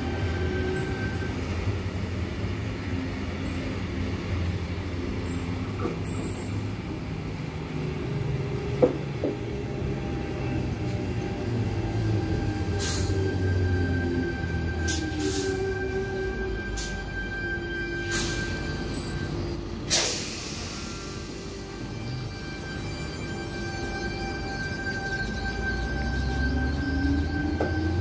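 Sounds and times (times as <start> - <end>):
train whining tones: 0.0 - 28.0
steady high tone: 12.0 - 19.8, 20.6 - 28.0.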